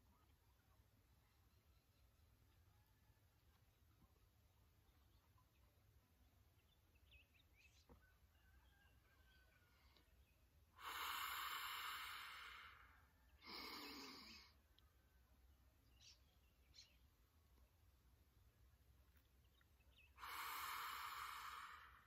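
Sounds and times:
deep breaths: 9.5s - 14.7s, 20.1s - 22.0s.

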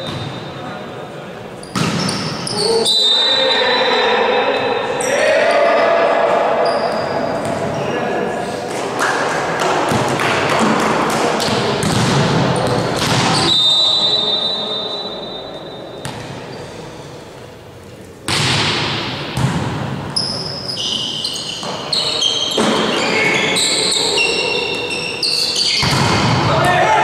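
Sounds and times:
sneakers squeaking on gym floor: 0.0s - 0.7s, 1.6s - 4.8s, 6.6s - 8.1s, 12.5s - 16.8s, 20.2s - 26.1s
referee's whistle blast: 2.5s - 4.8s, 13.3s - 15.8s
volleyball being hit: 9.6s - 13.4s, 18.3s - 20.0s, 25.8s - 26.6s.

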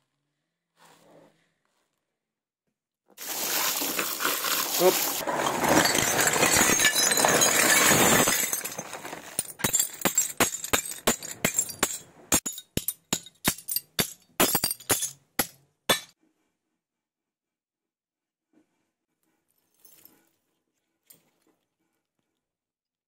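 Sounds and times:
dense clatter: 3.2s - 12.0s.

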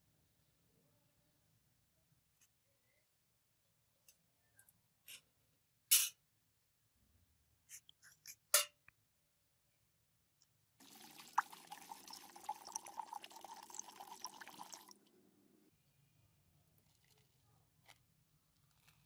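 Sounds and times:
water pouring into metal pot: 10.8s - 15.1s.

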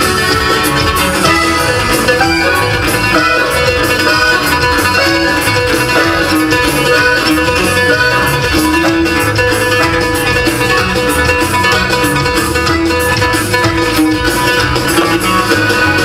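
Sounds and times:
plucked string instruments: 0.0s - 16.0s
pulsing bass: 0.0s - 16.0s.

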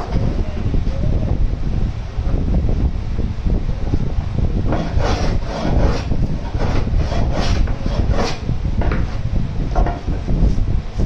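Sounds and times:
steady low rumble: 0.0s - 11.0s
rubbing scrape on plywood: 4.7s - 10.6s.

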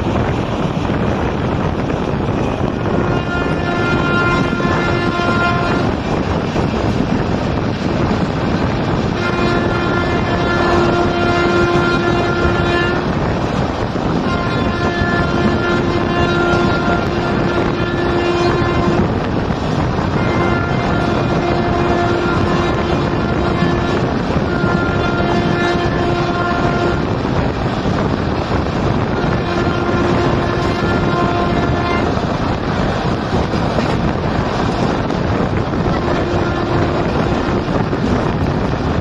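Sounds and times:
train wheels on rails and wind: 0.0s - 39.0s
train horn blasts: 2.7s - 6.2s, 8.1s - 38.8s.

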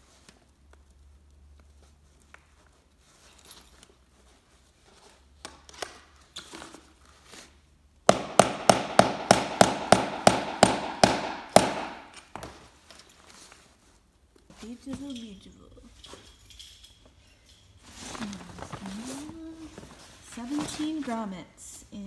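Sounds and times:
mallet striking metal tool: 8.1s - 12.2s.

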